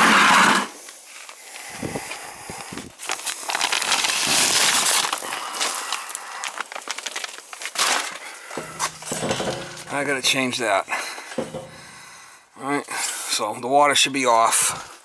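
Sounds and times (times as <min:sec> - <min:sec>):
insulation rustling and crackling: 0:06.4 - 0:12.2.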